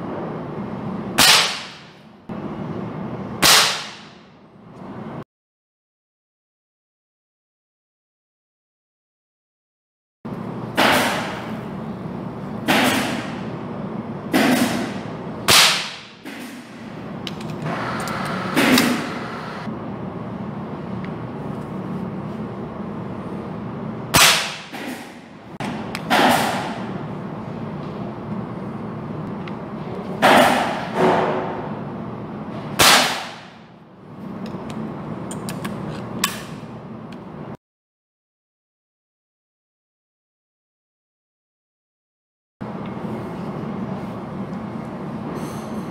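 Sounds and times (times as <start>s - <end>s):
air rifle shot: 1.2s - 1.9s, 3.4s - 4.2s, 24.2s - 25.0s, 32.8s - 33.6s.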